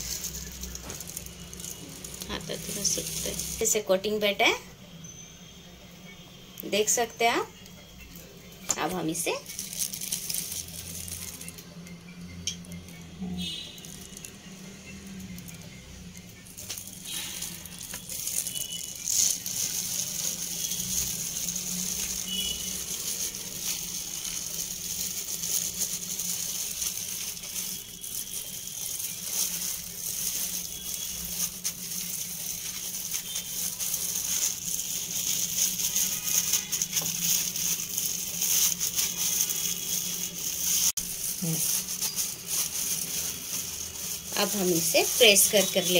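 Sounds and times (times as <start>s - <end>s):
plastic glove crinkling: 0.0s - 4.6s, 8.1s - 45.9s
patting and scraping in flour: 16.4s - 45.9s.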